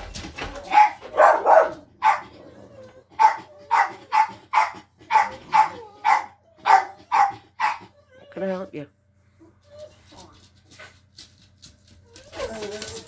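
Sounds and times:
dog barking rapidly: 0:00.6 - 0:02.3, 0:03.2 - 0:07.9.

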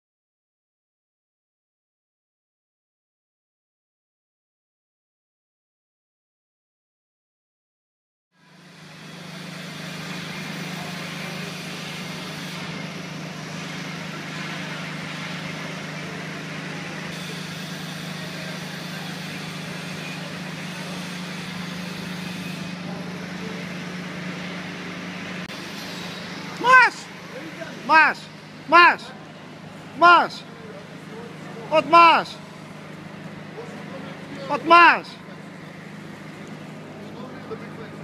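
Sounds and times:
crowd noise: 0:10.0 - 0:38.0.

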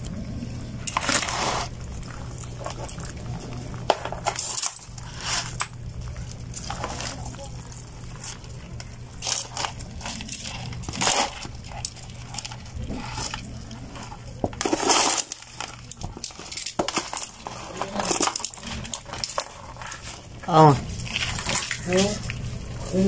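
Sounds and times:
faint low steady hum: 0:00.0 - 0:23.0
fish and crabs handled in plastic: 0:00.0 - 0:23.0.

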